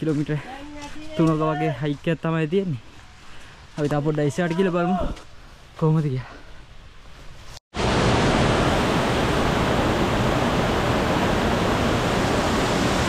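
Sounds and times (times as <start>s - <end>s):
waterfall rushing: 7.8s - 13.0s.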